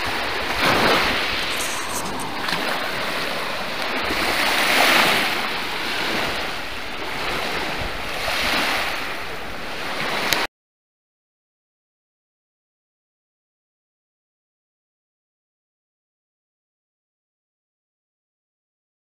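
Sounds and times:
waves washing in: 0.0s - 10.5s.

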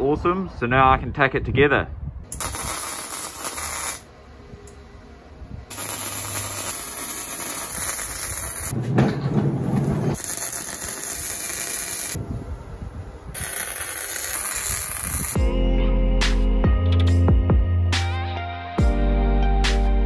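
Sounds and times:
welding arc crackling and hissing: 2.4s - 4.1s, 5.7s - 8.8s, 10.2s - 12.2s, 13.4s - 15.4s.

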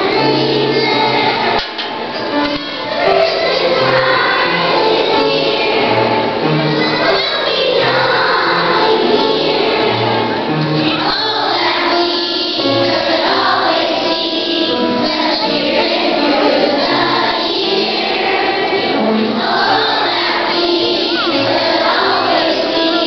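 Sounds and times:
children's choir singing: 0.0s - 23.0s.

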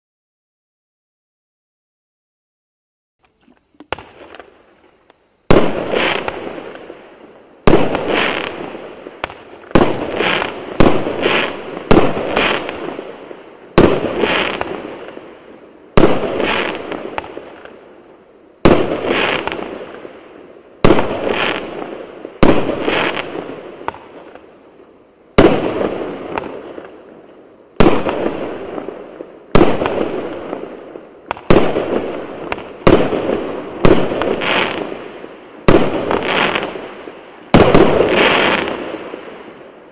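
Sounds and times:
firework cake bangs: 37.5s - 39.0s.

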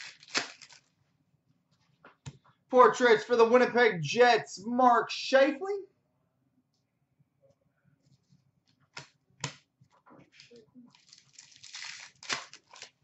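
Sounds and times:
cards rustling and sliding: 10.4s - 13.0s.

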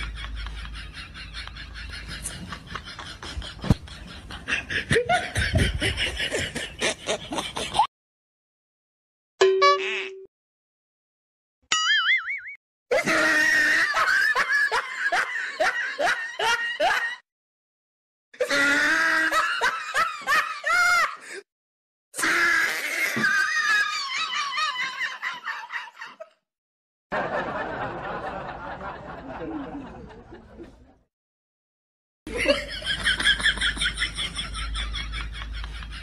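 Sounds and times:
laughter sound effects: 0.0s - 7.9s, 12.9s - 17.2s, 18.4s - 21.4s, 23.2s - 26.4s, 27.1s - 31.0s, 32.3s - 36.0s.

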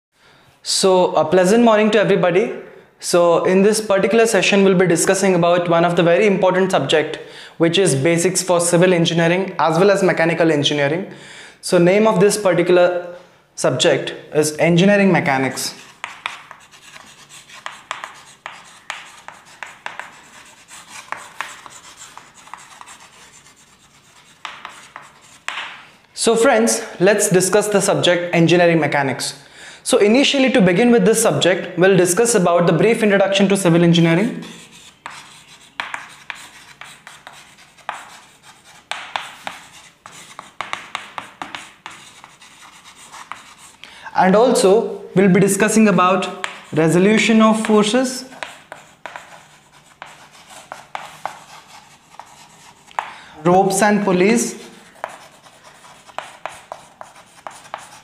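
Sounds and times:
chalk scratching on blackboard: 15.5s - 25.8s, 34.2s - 43.8s, 45.5s - 58.0s.

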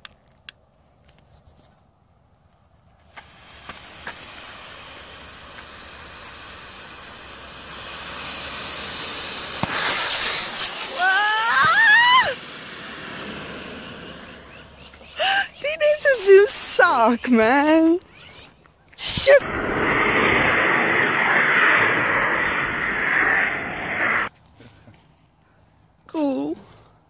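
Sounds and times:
rocket motor hissing: 3.0s - 24.3s
wavering cry: 10.9s - 12.5s.

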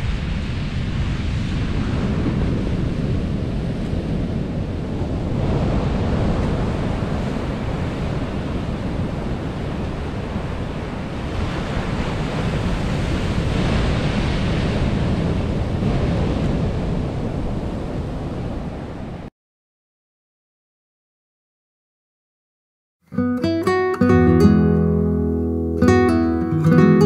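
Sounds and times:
surf breaking on beach: 0.0s - 19.3s
wind on microphone: 0.0s - 19.3s.

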